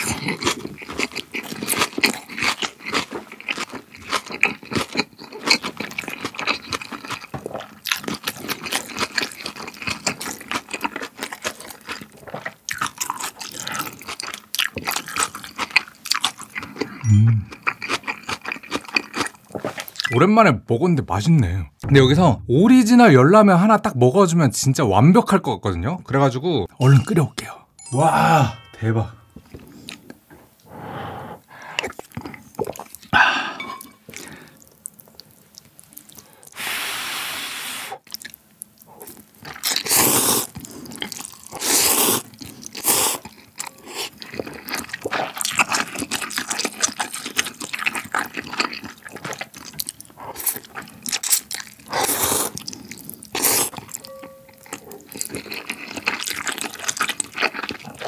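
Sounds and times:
wet chewing and smacking: 0.0s - 20.2s, 31.8s - 33.1s, 38.0s - 58.0s
slurping noodles: 39.6s - 43.2s, 51.9s - 53.8s.

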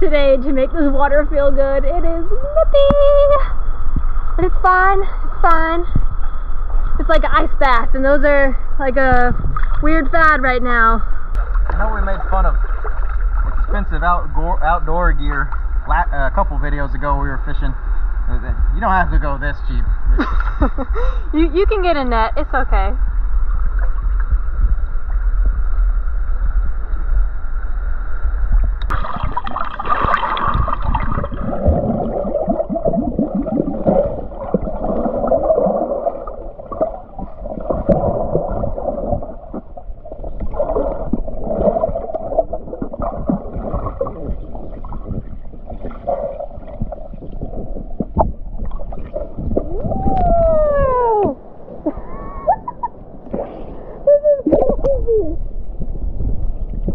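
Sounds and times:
low rumble with hum: 0.0s - 56.9s
underwater gurgling river water: 3.5s - 15.9s, 23.0s - 56.9s
underwater knocks and scrapes: 9.0s - 10.4s, 11.0s - 14.0s, 28.1s - 50.4s, 55.7s - 56.9s.

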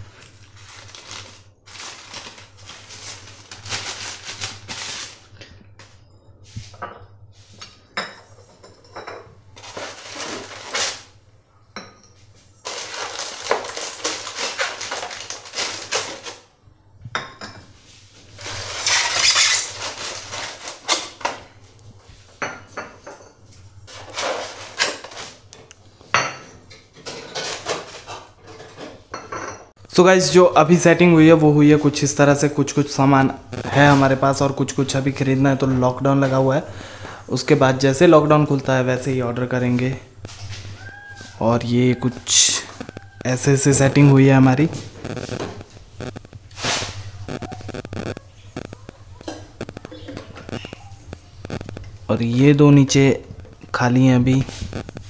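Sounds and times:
wrapping rustling: 0.0s - 5.4s, 9.6s - 11.2s, 12.6s - 16.5s, 18.3s - 21.2s
ceramic dishes clinking: 7.9s - 9.4s, 11.8s - 12.3s, 17.2s - 17.7s, 22.4s - 23.4s.

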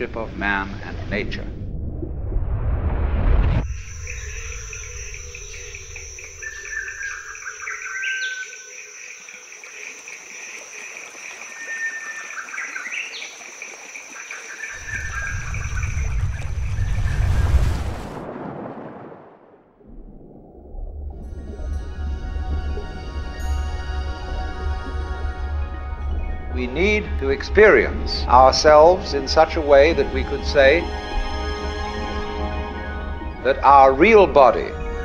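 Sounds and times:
low rumble: 0.0s - 7.0s, 14.8s - 30.6s
insects trilling: 3.6s - 17.2s.

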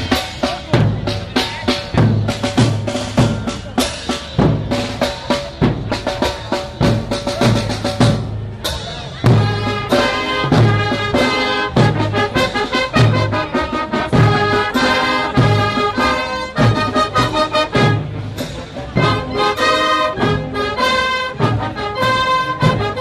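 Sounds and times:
snare and bass drum march beat: 0.0s - 23.0s
brass playing: 9.3s - 23.0s.

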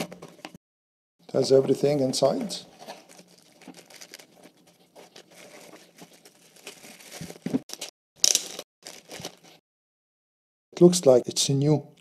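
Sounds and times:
plastic bags rustling and crinkling: 1.5s - 9.6s.

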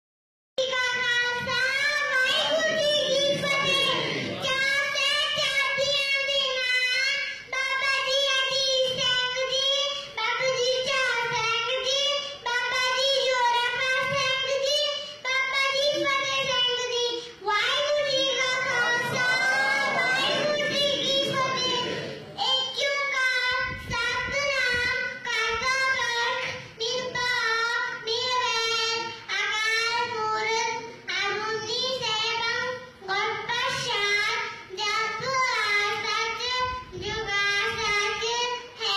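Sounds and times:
girl chanting: 0.6s - 30.5s.

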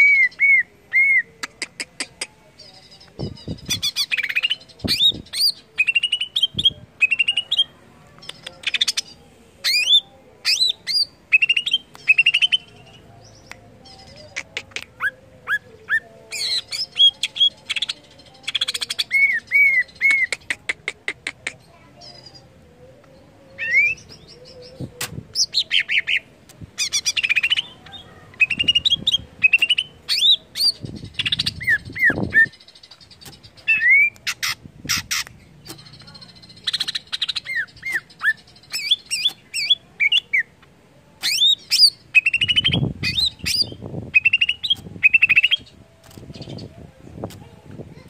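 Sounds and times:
bird singing whistles and trills: 41.2s - 45.7s.

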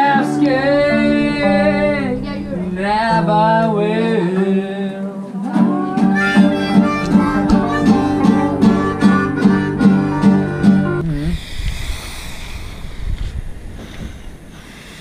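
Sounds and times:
acoustic guitar strumming: 0.0s - 4.7s, 5.4s - 11.0s
man singing: 0.0s - 10.0s.

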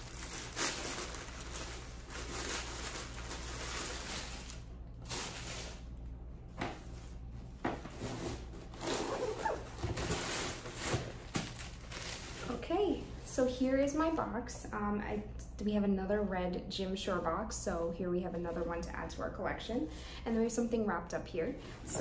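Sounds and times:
cardboard packaging rustling: 0.0s - 5.9s, 7.8s - 12.6s.

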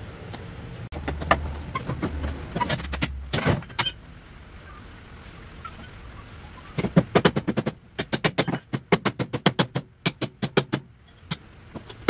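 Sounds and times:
hammer striking wooden deck: 6.8s - 10.9s.

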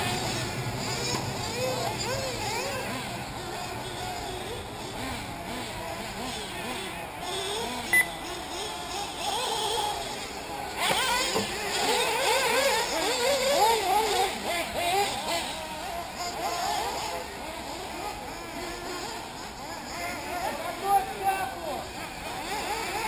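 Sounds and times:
small engines revving: 0.0s - 23.0s
short sharp beep: 7.9s - 8.2s.

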